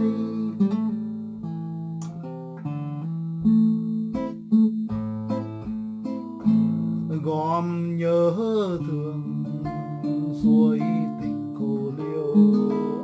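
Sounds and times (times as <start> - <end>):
classical guitar fingerpicking: 0.0 - 13.0.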